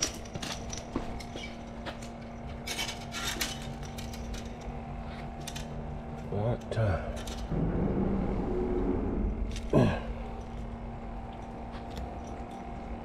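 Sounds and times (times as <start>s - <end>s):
handling clicks and rubbing: 0.0s - 6.2s
steady low hum: 0.0s - 13.0s.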